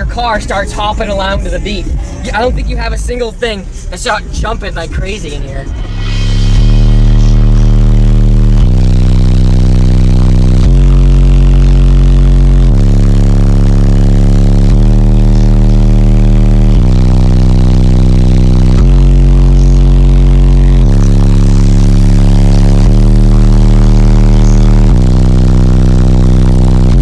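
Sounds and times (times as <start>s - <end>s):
loud bass-heavy music: 0.0s - 27.0s.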